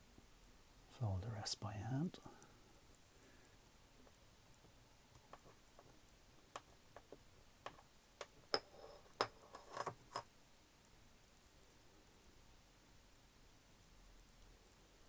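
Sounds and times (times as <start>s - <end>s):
light clicks and taps of metal parts: 2.2s - 10.3s.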